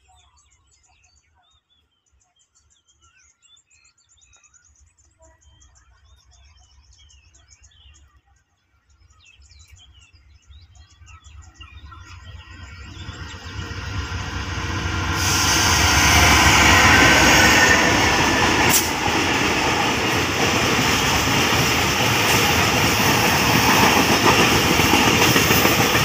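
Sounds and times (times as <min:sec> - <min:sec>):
small birds chirping: 0:00.0 - 0:26.0
locomotive rumble: 0:11.2 - 0:26.0.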